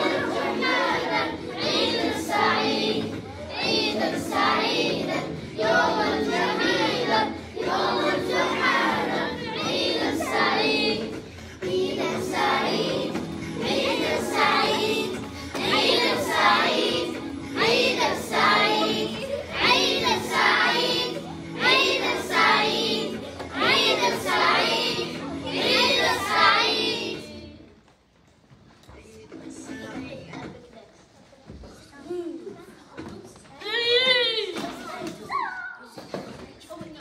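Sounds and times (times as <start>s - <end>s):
children singing together: 0.0s - 27.7s.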